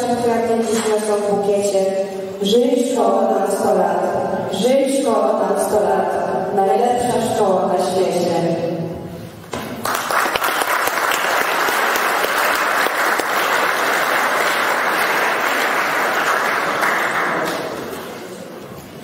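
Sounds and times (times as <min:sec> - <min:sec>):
audience applauding: 0:09.8 - 0:18.4.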